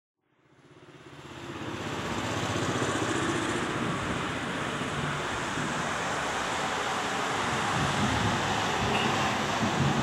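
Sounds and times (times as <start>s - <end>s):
wind buffeting microphone: 2.9s - 10.0s.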